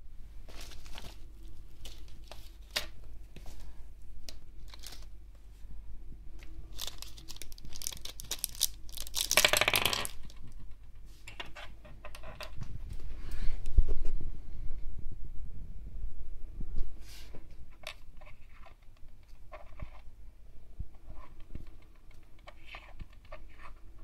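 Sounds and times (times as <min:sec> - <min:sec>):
plastic packaging crinkling: 0:00.5 - 0:03.0, 0:04.6 - 0:05.2, 0:06.7 - 0:10.5
plastic ripping: 0:06.7 - 0:10.2.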